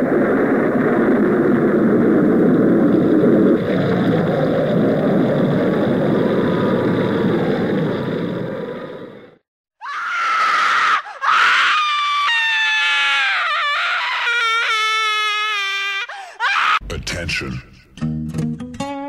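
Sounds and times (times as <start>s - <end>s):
person screaming: 9.8s - 16.8s.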